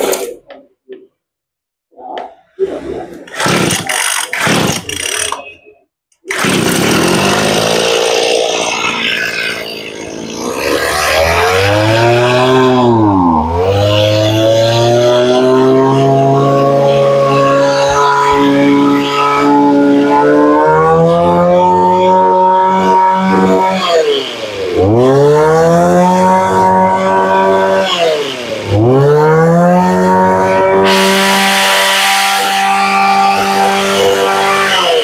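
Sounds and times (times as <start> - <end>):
brush-cutter engine running: 6.2 - 17.9.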